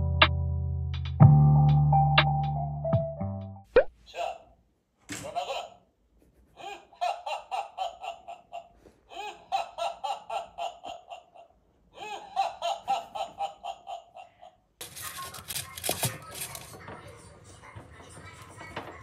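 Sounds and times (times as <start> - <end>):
recorded voice laughing: 5.1 - 14.7.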